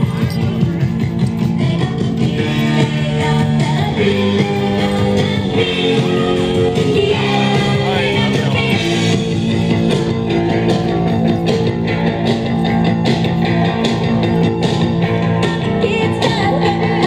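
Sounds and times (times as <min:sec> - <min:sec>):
live rock band with guitar: 0:00.0 - 0:17.0.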